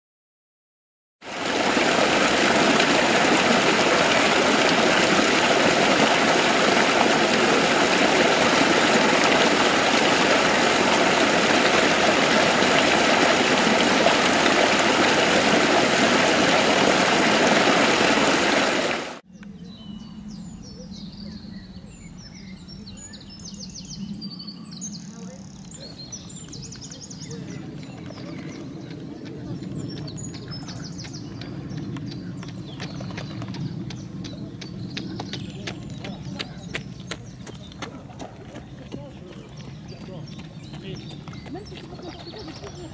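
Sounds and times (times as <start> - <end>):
water rushing: 1.2 - 19.2
small birds chirping: 19.3 - 42.9.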